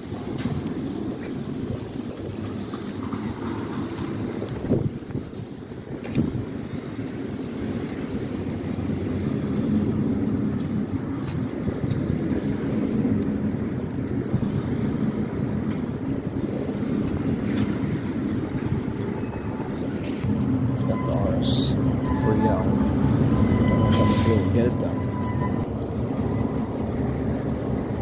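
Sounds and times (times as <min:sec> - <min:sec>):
low vehicle rumble: 0:08.4 - 0:28.0.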